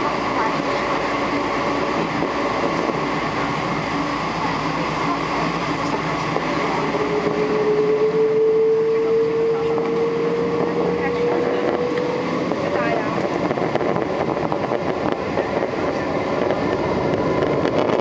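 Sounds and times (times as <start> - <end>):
airliner cabin rumbling hum: 0.0 - 18.0
whine rising in pitch: 1.6 - 15.0.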